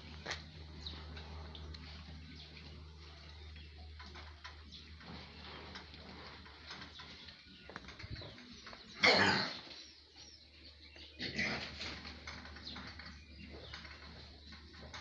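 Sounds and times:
faint rustling and clicks: 0.1s - 9.0s.

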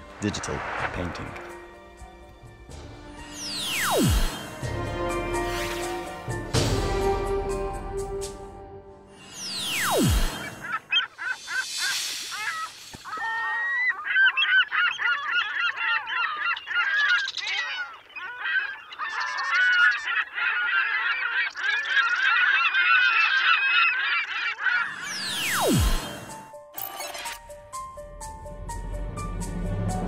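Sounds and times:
gulls calling: 9.3s - 26.4s.

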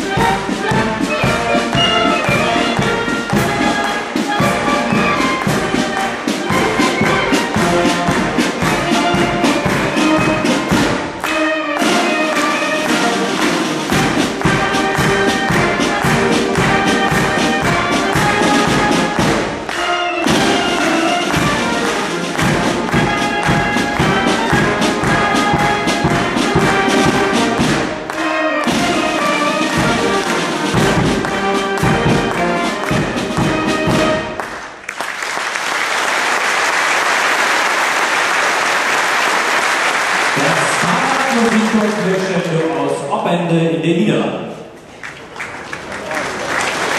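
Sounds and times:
military band playing a march: 0.0s - 34.8s
audience applause: 0.6s - 43.0s, 44.9s - 46.9s.

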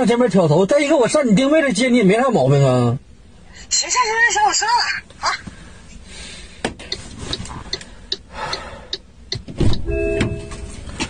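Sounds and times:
turn-signal relay ticking: 6.8s - 10.7s
short electronic chime: 9.8s - 10.8s.

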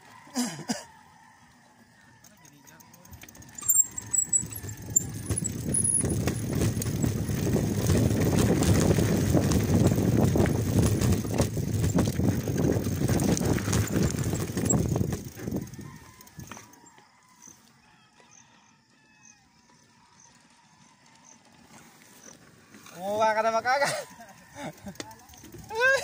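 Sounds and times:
mountain bike rattling over rocks: 2.2s - 16.9s, 20.2s - 26.0s
wind rushing over microphone: 4.4s - 16.5s.

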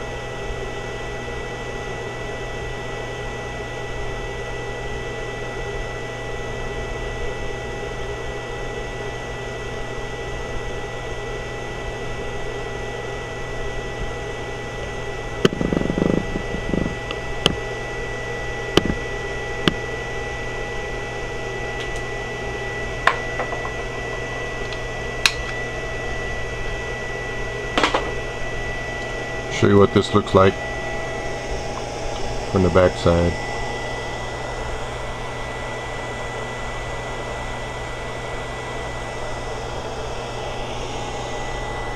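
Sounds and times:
electronic circuit hum and whine: 0.0s - 41.9s
small cooling fan: 0.0s - 41.9s.

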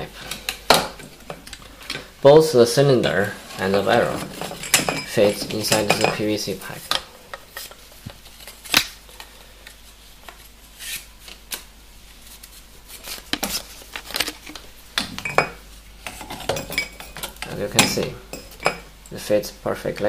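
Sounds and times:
metal parts clinking on workbench: 4.2s - 6.3s.

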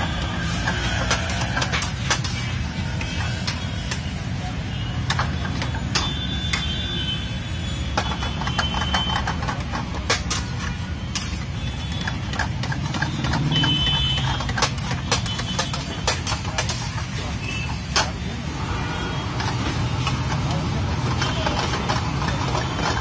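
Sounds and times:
utensils scraping a pan: 0.0s - 3.9s.

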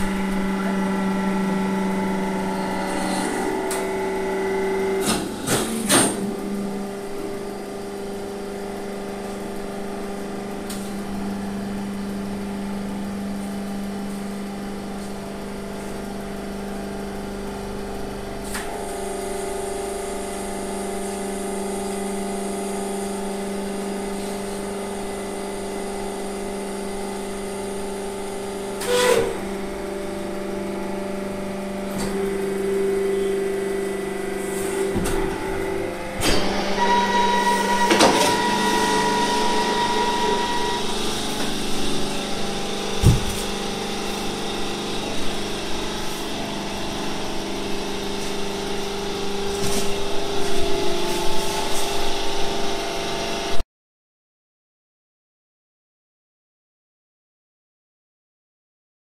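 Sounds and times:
baling press motor humming: 0.0s - 53.6s
high machine whine: 0.0s - 53.6s.

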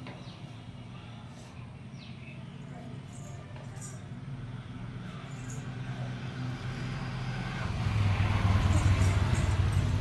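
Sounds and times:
vehicle engine humming: 3.9s - 10.0s.

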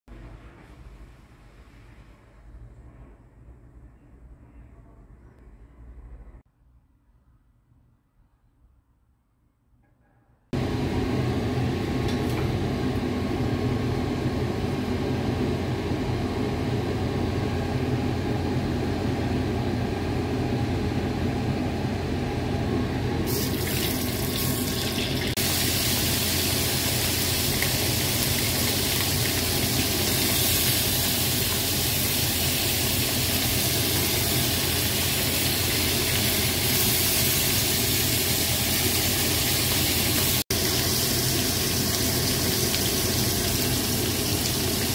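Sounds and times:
fish sizzling in hot oil: 23.3s - 44.9s.

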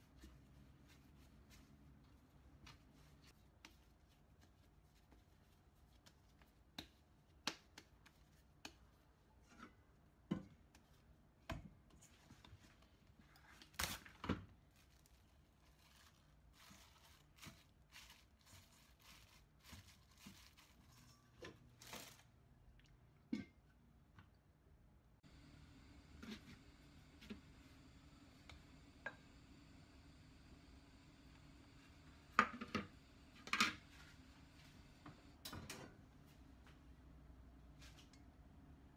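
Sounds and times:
hands kneading dough: 0.0s - 21.3s.

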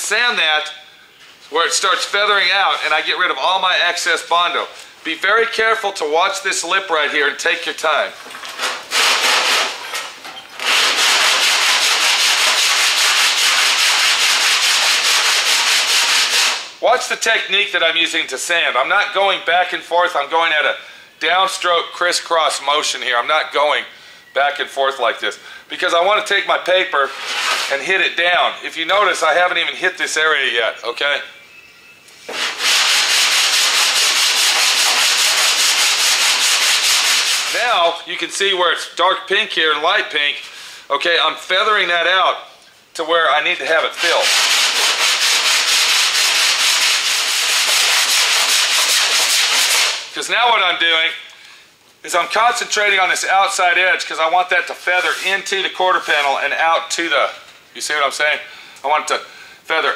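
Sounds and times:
sandpaper rasping over filler: 8.5s - 9.9s, 10.6s - 16.8s, 27.0s - 27.8s, 32.2s - 37.8s, 43.8s - 50.1s, 54.9s - 56.4s.

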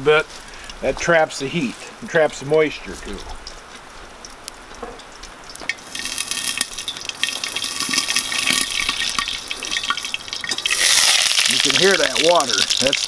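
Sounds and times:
food sizzling in hot oil: 5.0s - 13.0s.

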